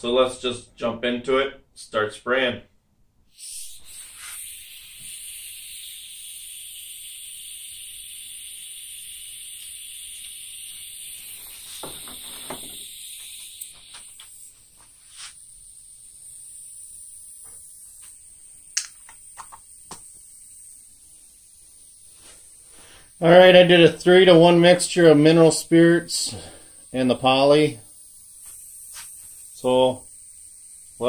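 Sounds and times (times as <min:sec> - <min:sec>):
compressed air hissing from spray gun: 0:03.3 - 0:31.0
clicks and knocks of spray gun: 0:11.7 - 0:12.8.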